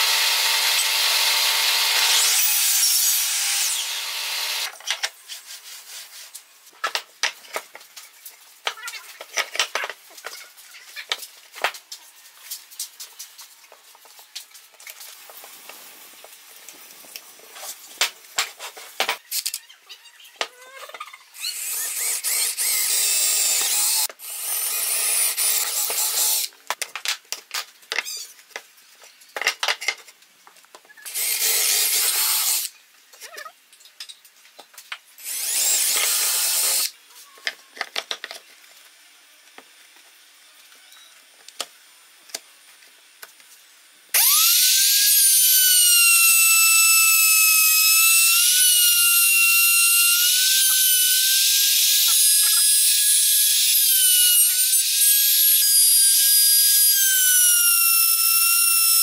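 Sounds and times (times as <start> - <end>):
router whining at high speed: 0.0 - 4.7, 35.2 - 36.9, 44.2 - 59.0
cordless drill boring wood: 0.0 - 4.8, 21.4 - 26.5, 31.1 - 32.7, 35.2 - 36.9, 44.2 - 59.0.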